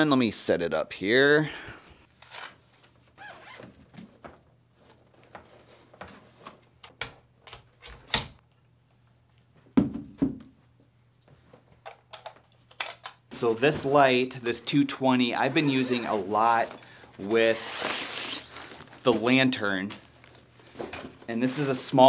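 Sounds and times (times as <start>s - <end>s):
light stand parts clicking and rattling: 18.4s - 21.4s.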